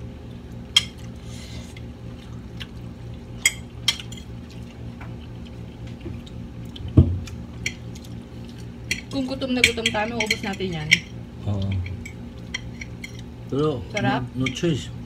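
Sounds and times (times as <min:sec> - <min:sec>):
forks clinking on plates: 0:08.9 - 0:13.3, 0:13.9 - 0:14.8.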